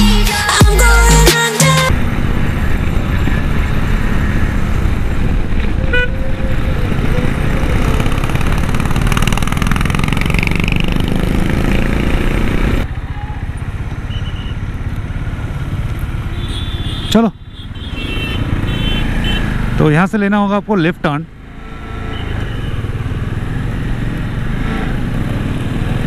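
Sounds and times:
motorcycle engine running: 0:01.9 - 0:19.9.

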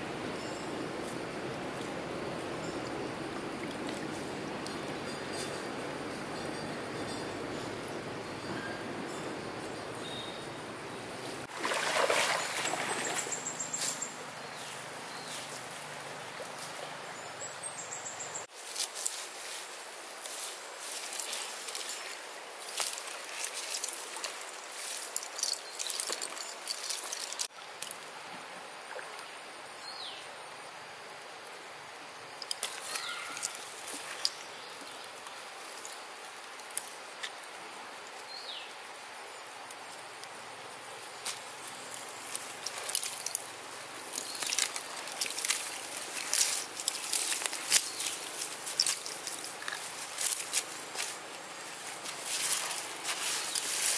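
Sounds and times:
water splashing and streaming: 0:00.0 - 0:06.2, 0:09.8 - 0:53.9
steady outdoor hiss: 0:00.0 - 0:53.9
dry leaves and twigs crackling: 0:18.5 - 0:27.5, 0:32.5 - 0:37.4, 0:41.0 - 0:53.9.

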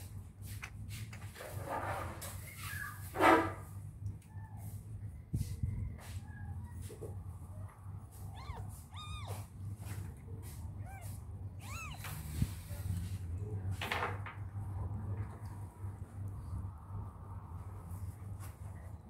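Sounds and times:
steady low hum: 0:03.7 - 0:19.0
cat mewing: 0:08.1 - 0:12.8
rustle: 0:08.1 - 0:13.8.

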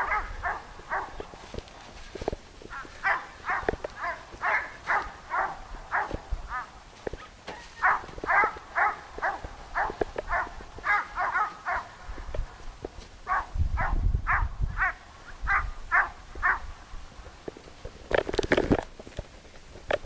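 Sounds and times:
dog barking: 0:00.0 - 0:01.2, 0:02.8 - 0:12.0, 0:13.3 - 0:16.7.

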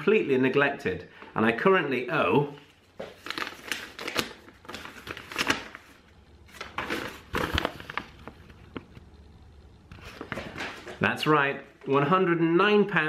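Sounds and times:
paper rustling and crinkling: 0:02.6 - 0:09.1, 0:09.9 - 0:11.1.

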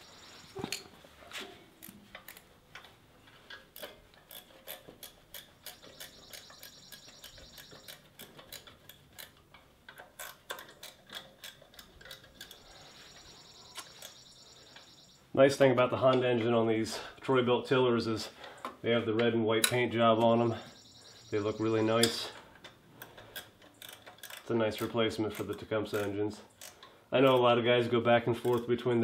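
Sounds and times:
wrench ratcheting: 0:03.7 - 0:12.8, 0:23.0 - 0:27.5, 0:28.3 - 0:29.0.

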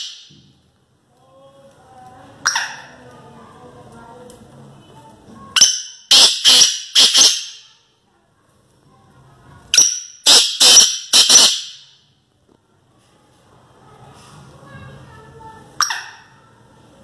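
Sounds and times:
francolin calling: 0:09.8 - 0:11.9.

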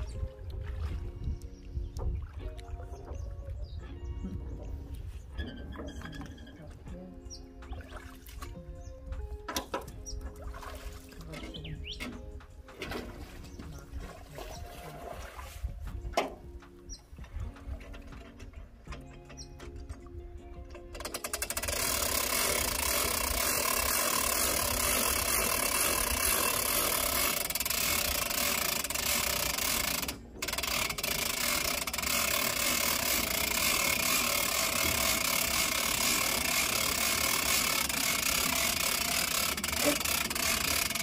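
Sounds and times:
motor running: 0:21.0 - 0:41.0.

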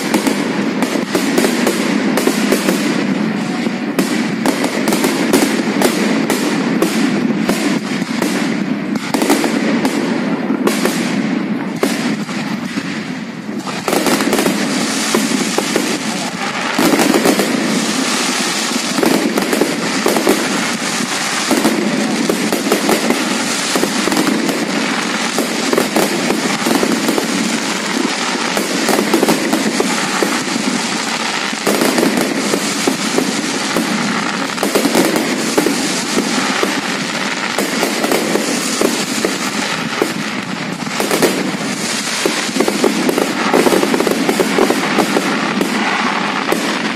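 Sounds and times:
fireworks bangs and crackling: 0:00.0 - 0:46.9.

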